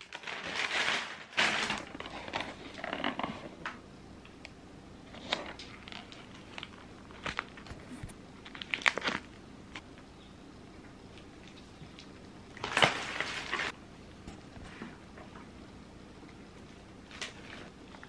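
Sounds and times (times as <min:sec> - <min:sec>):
packaging crinkling: 0:00.0 - 0:03.7, 0:05.2 - 0:09.4, 0:11.1 - 0:13.8
plastic film and cardboard rustling: 0:00.0 - 0:03.8, 0:05.1 - 0:09.4, 0:11.1 - 0:13.8, 0:16.6 - 0:18.0.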